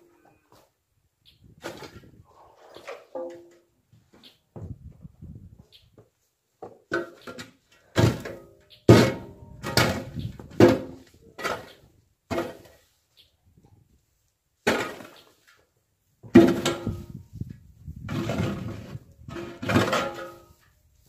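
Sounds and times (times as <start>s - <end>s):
shovel scraping in wooden bunk: 18.0s - 20.7s.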